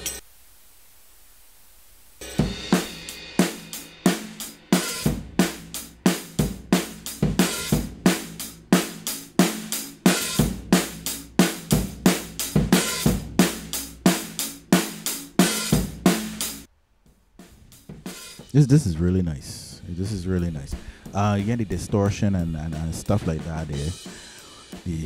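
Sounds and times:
drum kit beat: 2.2 - 25.0.

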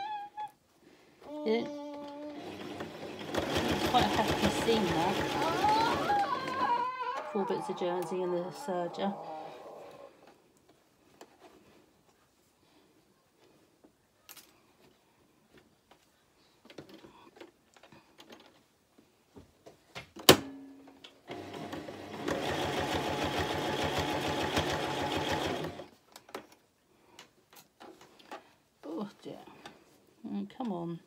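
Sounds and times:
sewing machine stitching: 2.3 - 6.9, 21.3 - 25.9.

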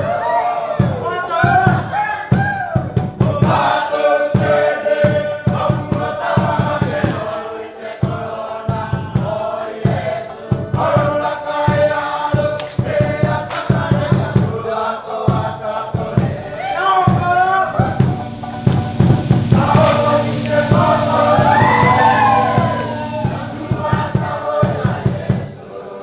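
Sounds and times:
low beat: 17.3 - 24.3.

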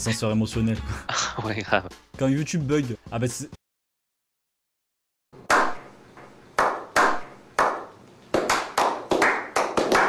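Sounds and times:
hand claps with echo: 5.5 - 5.8, 6.6 - 10.0.

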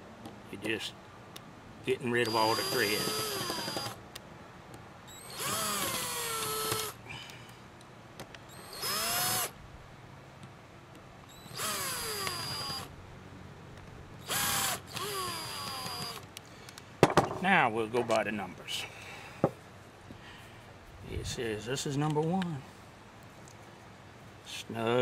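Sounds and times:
cordless drill driving screws: 2.2 - 4.0, 5.1 - 7.0, 8.5 - 9.6, 11.3 - 12.9, 14.2 - 16.3.

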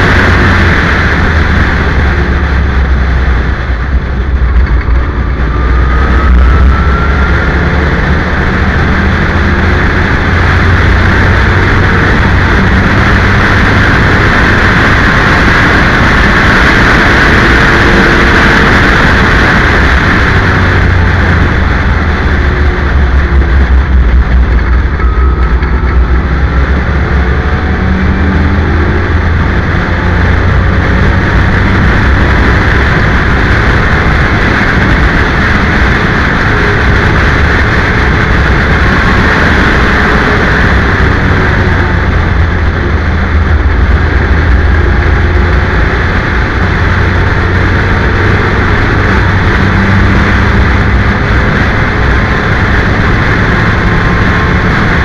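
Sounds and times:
race car engine at speed: 0.0 - 55.0
wind rushing over microphone: 0.0 - 55.0.

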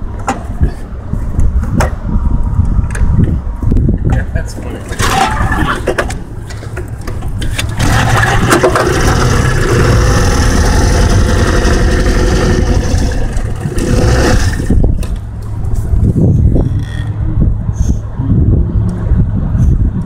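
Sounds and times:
outboard motor running: 7.6 - 14.8.

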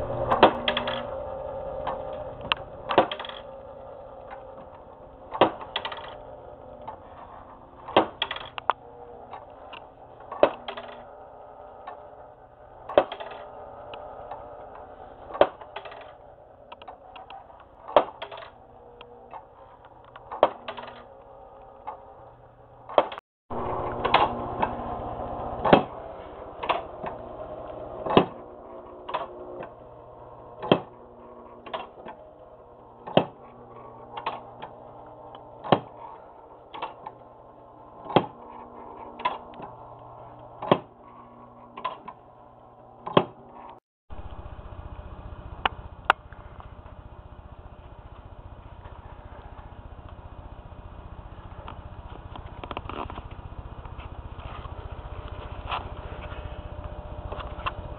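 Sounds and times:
steady hum: 0.0 - 57.9
wooden mechanism knocking: 33.0 - 33.4, 35.6 - 36.1.

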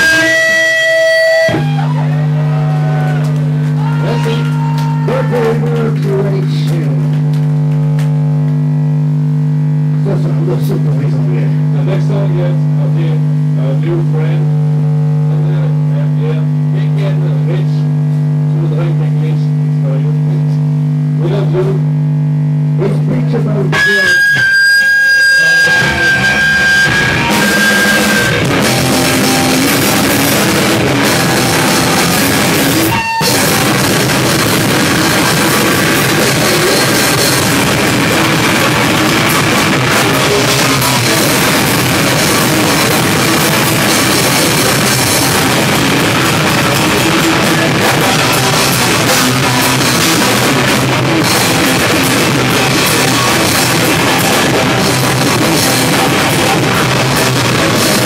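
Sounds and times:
rock band playing loud: 0.0 - 11.0, 23.7 - 58.0
high steady whine: 0.0 - 58.0.

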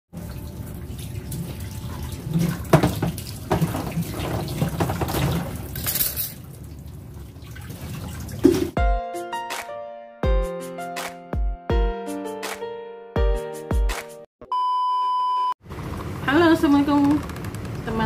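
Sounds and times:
water running into steel sink: 0.2 - 8.8
items clattering against sink: 2.2 - 6.5.

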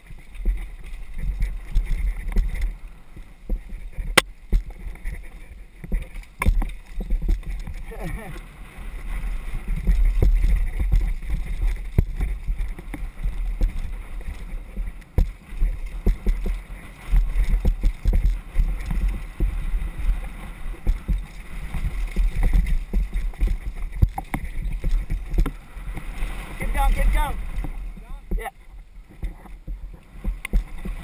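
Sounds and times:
wind buffeting microphone: 0.0 - 31.0
bike knocks and rattles: 3.4 - 8.3, 9.6 - 20.1, 20.7 - 25.6.

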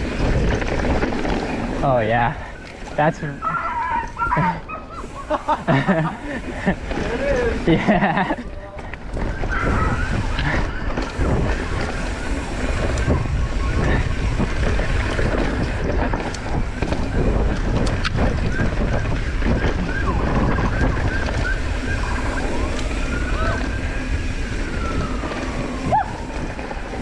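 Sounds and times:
bike rattling and clicking: 0.0 - 27.0
tyres rumbling on dirt: 0.0 - 27.0
wind rushing over microphone: 0.0 - 27.0.

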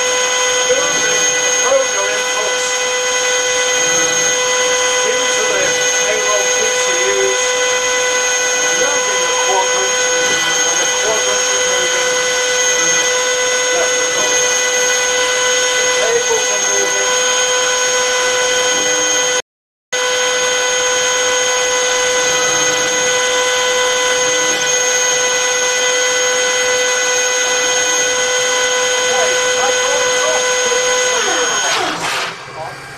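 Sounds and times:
hydraulic pump whine: 0.0 - 19.4, 20.0 - 32.9.

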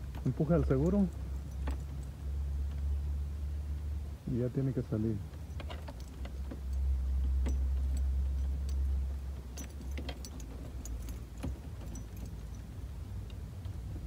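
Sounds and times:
small metallic clicks and rattles: 0.0 - 3.0, 5.2 - 14.0
low steady hum: 0.0 - 14.0.

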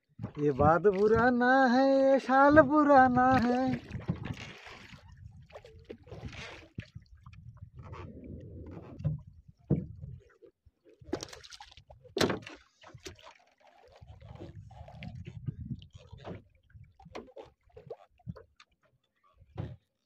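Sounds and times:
water slopping against boat: 0.0 - 20.0
wind on microphone: 2.5 - 10.3, 14.1 - 17.0.

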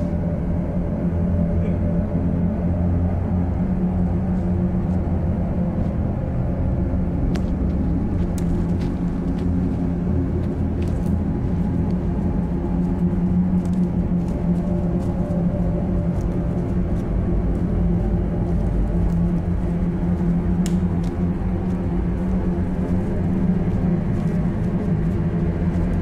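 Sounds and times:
low droning rumble: 0.0 - 26.0
faint light snaps: 20.6 - 21.2.

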